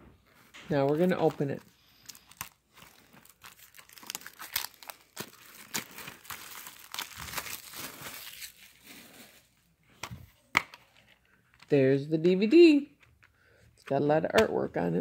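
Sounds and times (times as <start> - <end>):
plastic wrap crinkling and tearing: 0.5 - 9.6.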